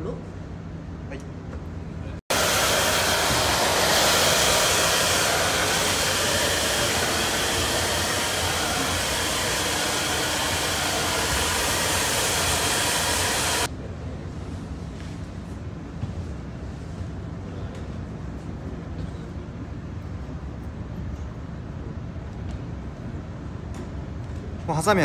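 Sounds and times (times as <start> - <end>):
hair dryers blowing: 2.3 - 13.7.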